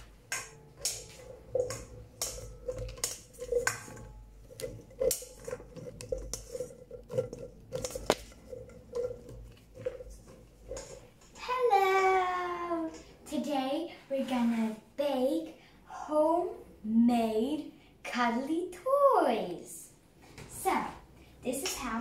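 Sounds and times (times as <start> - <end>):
plastic spoon clinking in steel bowl: 0.0 - 11.5
steel bowl ringing: 0.0 - 11.5.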